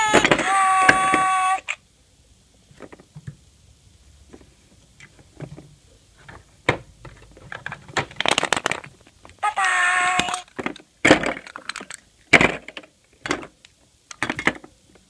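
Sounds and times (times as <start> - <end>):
plastic toys clicking and tapping: 0.0 - 1.8, 7.1 - 14.8.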